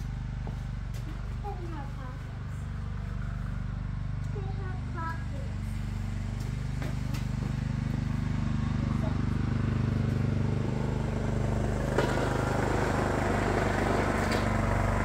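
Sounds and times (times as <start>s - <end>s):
lawn tractor engine putter: 5.0s - 15.0s.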